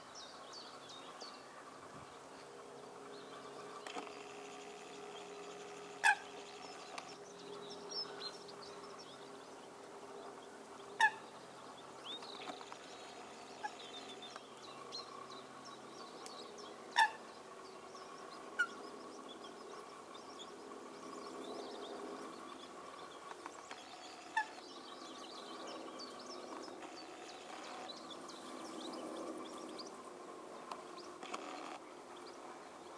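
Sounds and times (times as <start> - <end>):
birds chirping: 0.0 - 32.9
faint hum: 0.0 - 32.9
coot calls: 11.0 - 11.3, 17.0 - 17.2.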